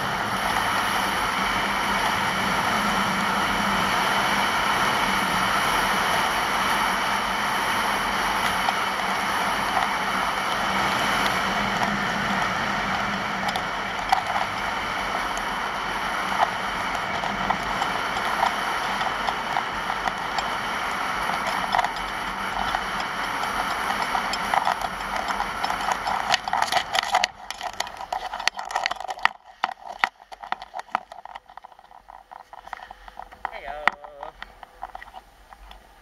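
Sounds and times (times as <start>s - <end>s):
skis scraping over snow: 0.0s - 36.0s
ski gear clicks and knocks: 16.3s - 36.0s.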